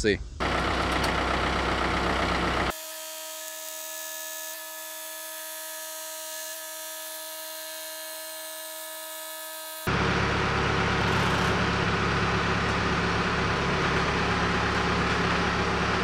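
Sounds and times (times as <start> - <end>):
tractor diesel engine running: 0.4 - 2.7, 9.9 - 16.0
high-pitched machine whine: 0.4 - 15.1.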